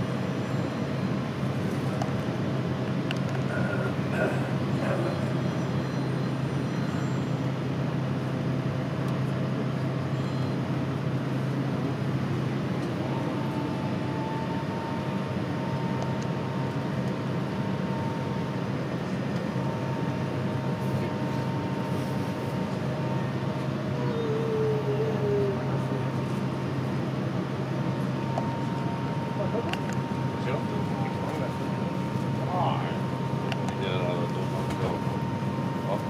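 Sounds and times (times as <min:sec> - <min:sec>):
airliner cabin hum: 0:00.0 - 0:36.0
faint high whine: 0:09.5 - 0:36.0.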